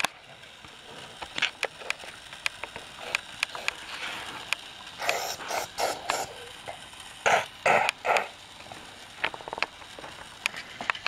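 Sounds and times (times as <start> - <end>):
plastic toys clattering: 8.8 - 11.0.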